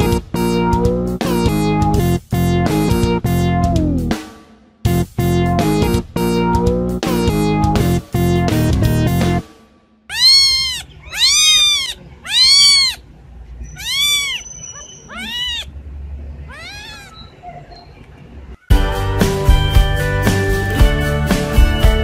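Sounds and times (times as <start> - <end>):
music: 0.0 - 10.1, 18.7 - 22.0
kitten meowing: 10.1 - 13.0, 13.6 - 15.7, 16.5 - 17.3.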